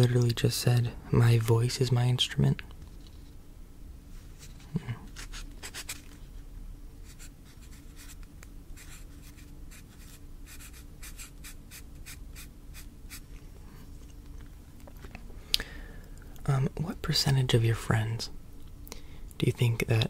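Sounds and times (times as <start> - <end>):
pen scratching on paper: 8.8 - 13.2.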